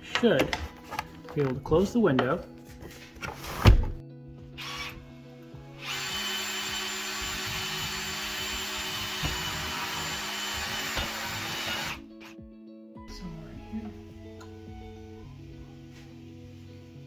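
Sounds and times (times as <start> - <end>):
cordless drill boring wood: 4.6 - 5.0, 5.8 - 12.0.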